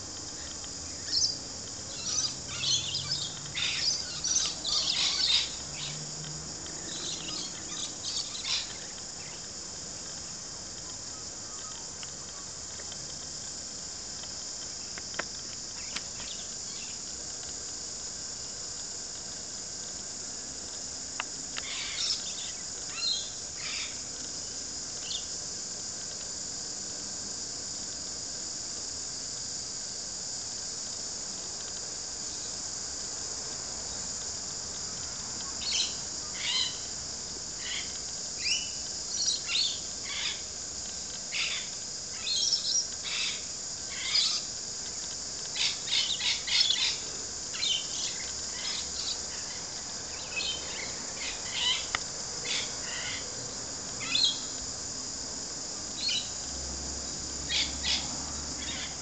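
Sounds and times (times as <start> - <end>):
high-pitched insect drone: 0.0 - 59.0.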